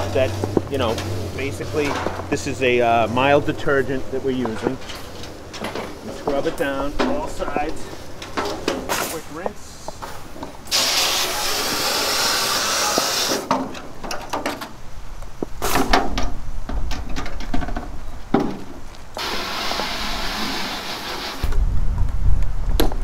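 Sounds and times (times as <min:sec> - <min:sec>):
hose water spray hissing: 0:00.0 - 0:05.3, 0:08.8 - 0:13.5, 0:19.2 - 0:21.5
metal duct knocking and rattling: 0:04.4 - 0:09.2, 0:15.6 - 0:18.8
low rumble: 0:21.4 - 0:23.0.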